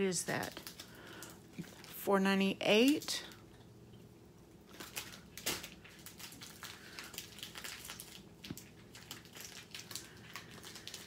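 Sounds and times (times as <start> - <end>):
plastic bags crinkling: 0.0 - 2.1, 4.6 - 11.0.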